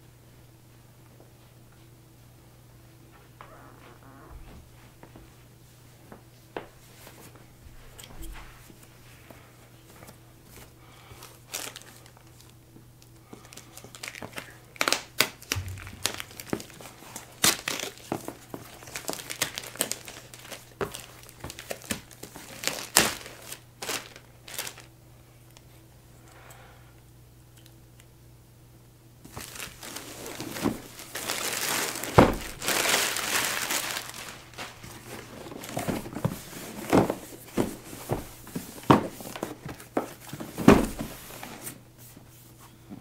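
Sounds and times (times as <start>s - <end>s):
plastic shrink-wrap tearing and crinkling: 11.4s - 12.5s, 13.5s - 24.9s, 29.3s - 36.0s.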